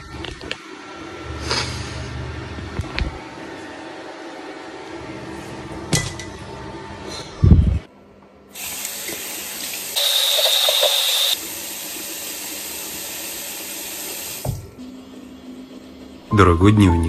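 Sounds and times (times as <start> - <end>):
bathroom sink tap running: 8.6 - 14.6.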